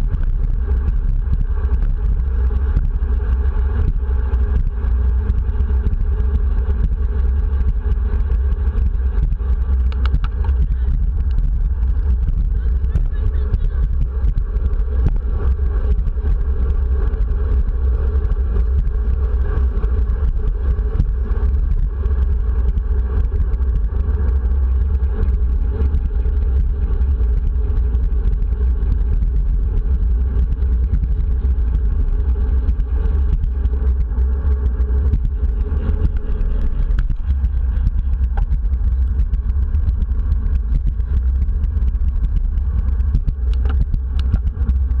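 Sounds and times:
higher hum: 0:00.0 - 0:45.0
road and tyre noise: 0:00.0 - 0:45.0
wind buffeting microphone: 0:00.0 - 0:45.0.

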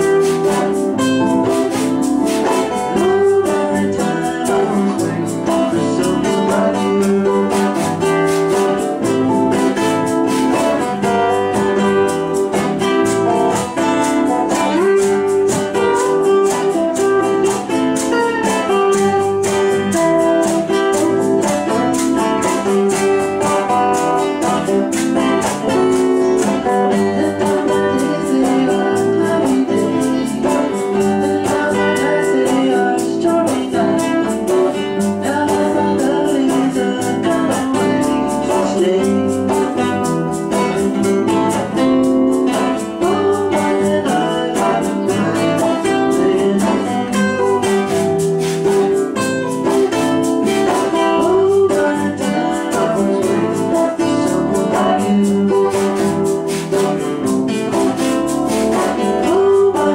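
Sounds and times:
band playing rock blues: 0:00.0 - 0:59.9.

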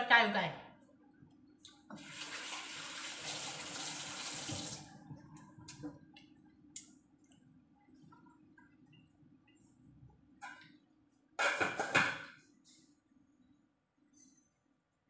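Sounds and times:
water running from tap: 0:01.9 - 0:04.9.

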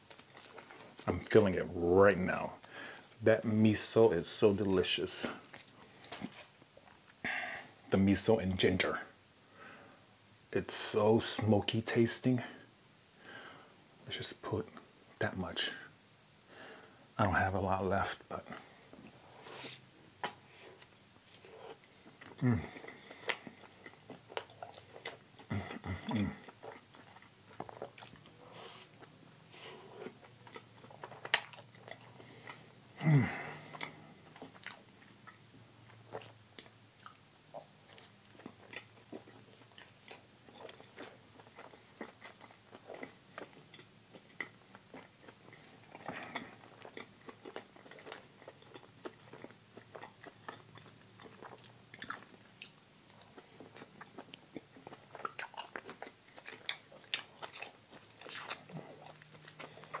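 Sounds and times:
person chewing bread: 0:00.0 - 0:01.5, 0:18.4 - 1:00.0
short vocal sound: 0:22.4 - 0:22.8, 0:33.0 - 0:33.7.

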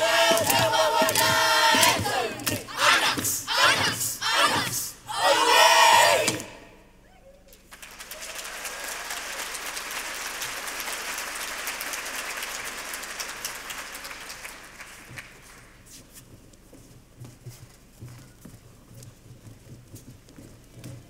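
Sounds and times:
audience applauding: 0:07.6 - 0:15.8.

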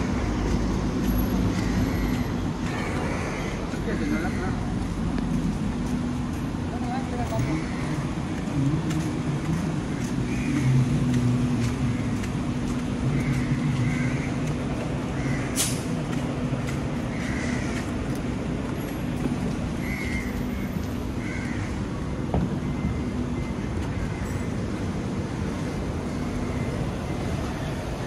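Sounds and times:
road noise: 0:00.0 - 0:28.0
vehicle engine humming: 0:00.0 - 0:28.0
short sharp hiss: 0:15.6 - 0:15.9.

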